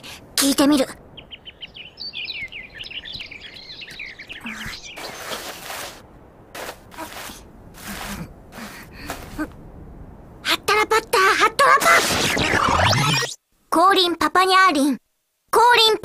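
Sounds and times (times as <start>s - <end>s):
cartoon birds chirping: 1.2s - 5.5s, 11.7s - 13.4s
rustles of leaves and grass: 4.4s - 9.6s.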